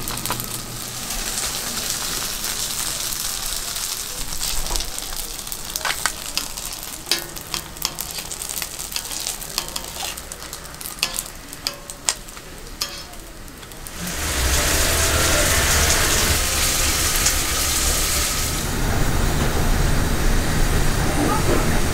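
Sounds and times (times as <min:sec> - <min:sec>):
oil sizzling: 0:00.0 - 0:20.6
metal tongs clicking and scraping: 0:04.2 - 0:13.9.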